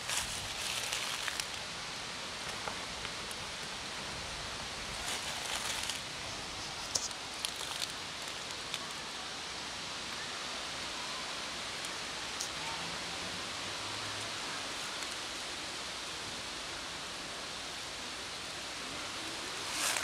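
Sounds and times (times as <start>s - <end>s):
steady background hiss: 0.0s - 20.0s
kittens crunching dry kibble: 5.0s - 8.8s.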